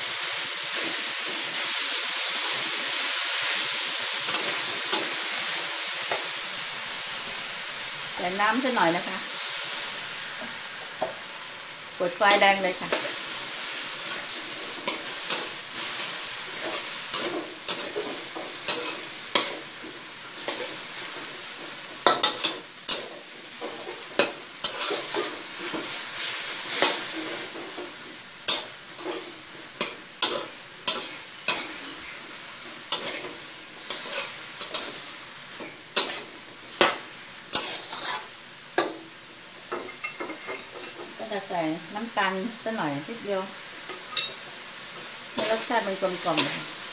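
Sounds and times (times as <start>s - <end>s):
food sizzling: 0.0s - 46.9s
metal spatula scraping a wok: 12.2s - 39.0s, 43.8s - 46.9s.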